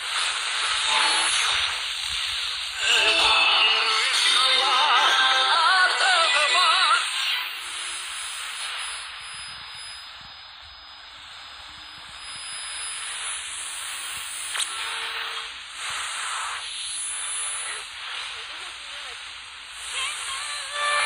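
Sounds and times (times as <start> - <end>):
radio static hiss: 0.0 - 21.0
radio click: 14.5 - 14.9.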